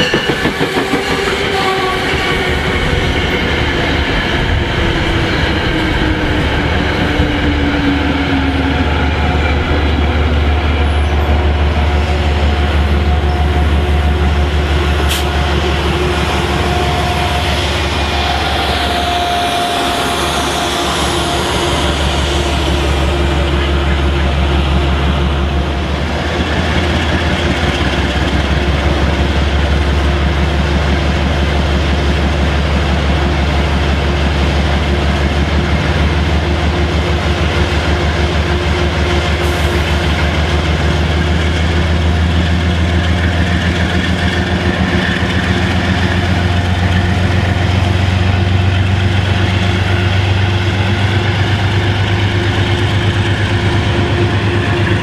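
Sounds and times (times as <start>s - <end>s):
diesel locomotive engine droning: 0.0s - 55.0s.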